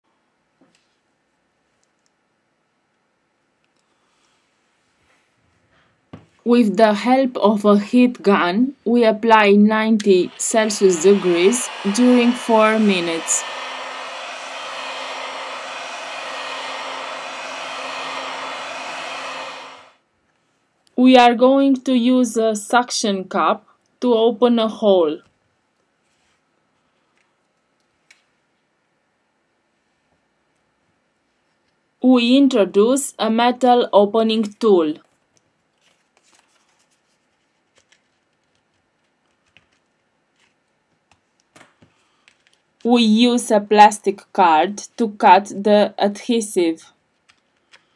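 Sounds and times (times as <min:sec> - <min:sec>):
heat gun blowing air: 0:09.3 - 0:20.0.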